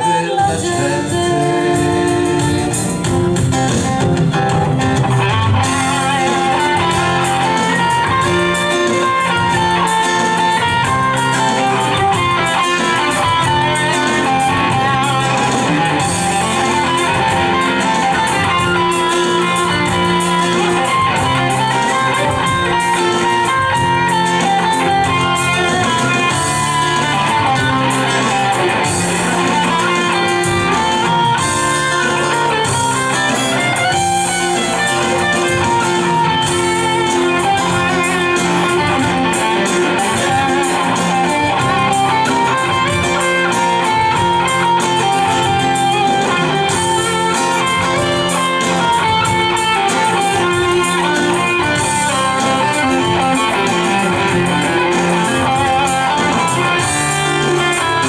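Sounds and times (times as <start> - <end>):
bass guitar: 0.0 - 58.0
drums: 0.0 - 58.0
electric and acoustic guitars: 0.0 - 58.0
keyboards: 0.0 - 58.0.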